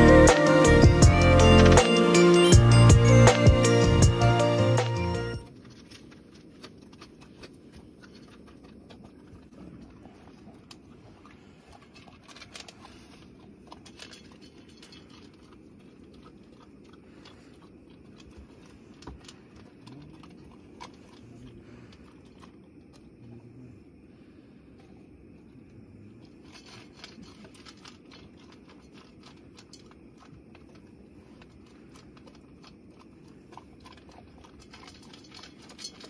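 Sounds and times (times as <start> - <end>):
dog crunching dry food: 5.5 - 22.6, 26.2 - 36.0
kibble clicking on metal bowl: 26.4 - 36.0.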